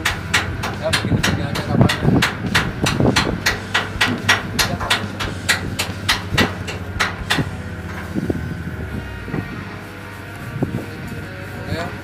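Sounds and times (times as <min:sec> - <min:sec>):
rapid even knocking: 0:00.0 - 0:07.5
low hum: 0:02.2 - 0:12.0.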